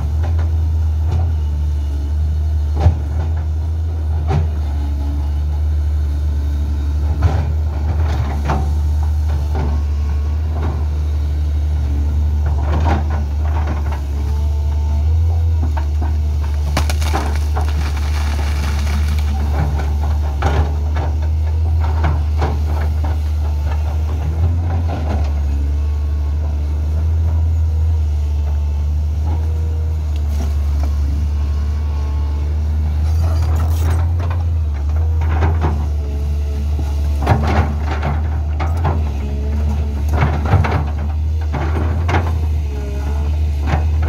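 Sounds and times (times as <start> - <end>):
excavator diesel engine running: 0.0 - 44.0
bucket cracking through dry scrub: 16.5 - 19.5.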